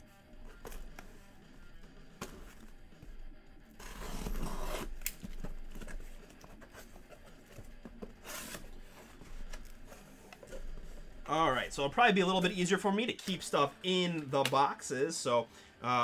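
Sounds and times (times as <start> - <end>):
packing tape tearing: 3.7 - 7.3, 8.0 - 10.5
cardboard flaps scraping: 3.8 - 11.2.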